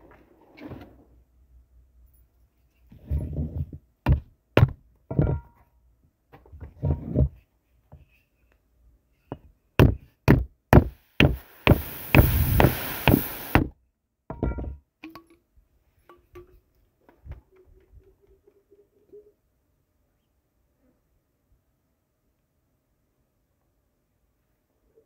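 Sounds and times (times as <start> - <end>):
objects knocking and thumping: 3.0 - 5.7, 9.3 - 15.4
hiss: 10.8 - 13.7.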